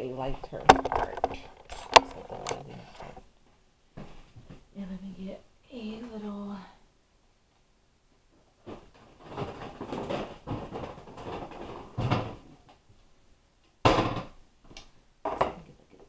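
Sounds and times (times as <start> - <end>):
plastic containers clattering: 0.5 - 3.2, 8.6 - 12.7, 15.2 - 16.0
rummaging in a cupboard: 8.6 - 12.7.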